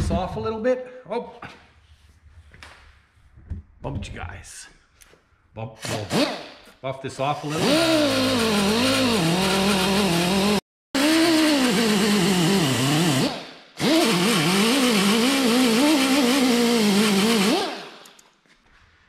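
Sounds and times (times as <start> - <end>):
rotary tool buffing metal: 7.4 - 18.1.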